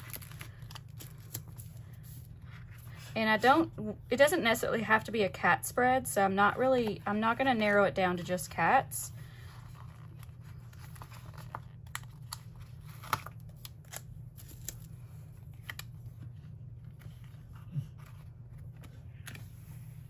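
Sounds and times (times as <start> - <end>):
steady low hum: 0.0 - 20.0
paper pages rustling: 9.3 - 20.0.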